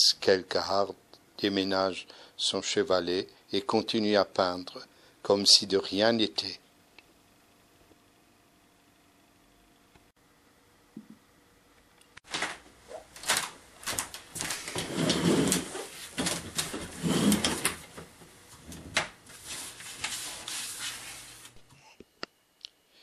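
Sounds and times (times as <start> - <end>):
chair clicks and knocks: 12.2 - 19.2.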